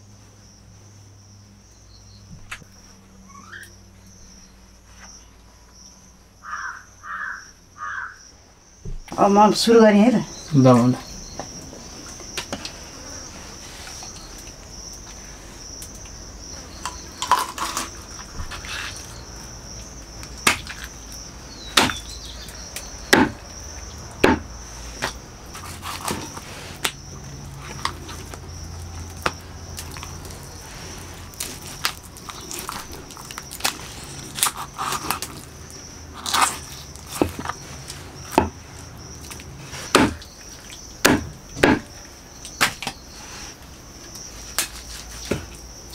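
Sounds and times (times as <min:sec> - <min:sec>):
insects droning: 0:00.0 - 0:45.9
knife chopping on wooden block: 0:21.8 - 0:22.0, 0:23.1 - 0:23.4, 0:24.2 - 0:24.4, 0:39.9 - 0:40.2, 0:41.0 - 0:41.9.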